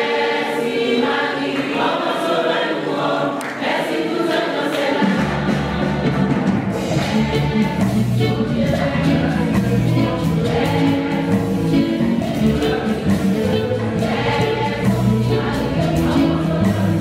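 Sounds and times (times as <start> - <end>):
choir singing a hymn: 0.0 - 17.0
low bass accompaniment: 6.7 - 17.0.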